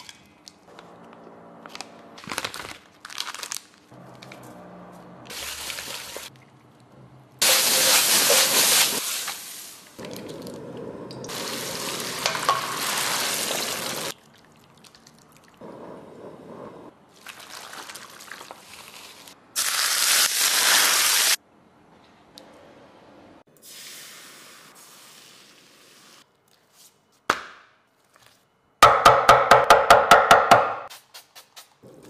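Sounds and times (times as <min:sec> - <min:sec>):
food sizzling in frying pan: 0:11.3 - 0:14.1.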